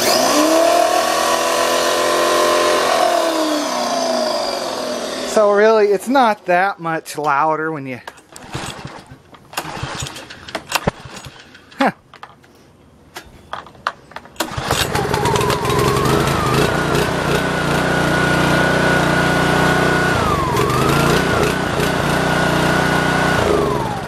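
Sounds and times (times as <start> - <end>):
small engine whining: 0.0 - 5.5, 14.4 - 24.0.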